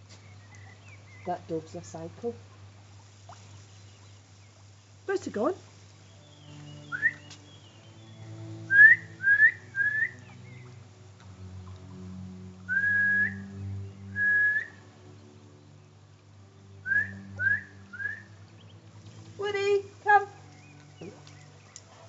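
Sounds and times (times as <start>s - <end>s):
person whistling: 12.7s - 13.4s, 14.2s - 14.7s.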